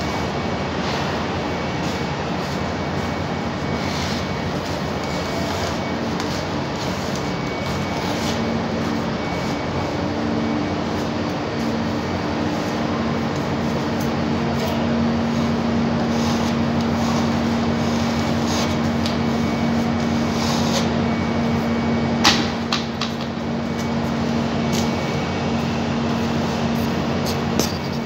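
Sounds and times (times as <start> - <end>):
steady mechanical hum: 0.0 - 28.0.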